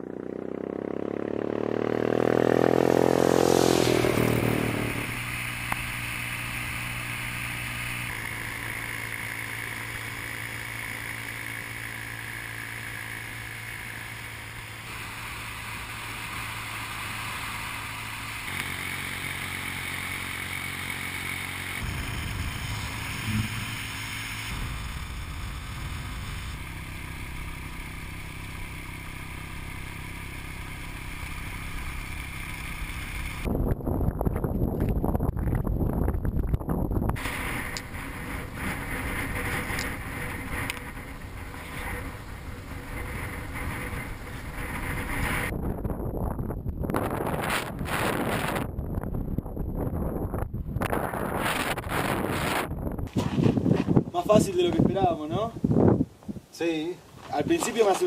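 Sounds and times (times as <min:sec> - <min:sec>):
motorcycle engines cruising: 0:00.0 - 0:33.5, 0:34.3 - 0:45.9, 0:50.6 - 0:58.0
motorcycle passing by: 0:00.0 - 0:33.5, 0:37.2 - 0:45.6
wind rush: 0:33.5 - 0:57.5.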